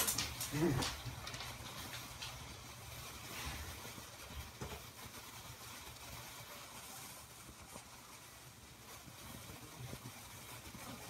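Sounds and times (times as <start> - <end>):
light hiss: 0.0 - 11.0.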